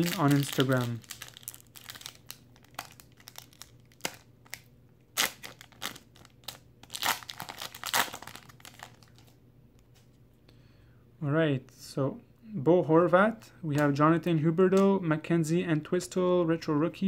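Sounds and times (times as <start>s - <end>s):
wrapper crinkling and tearing: 0.0s - 9.3s.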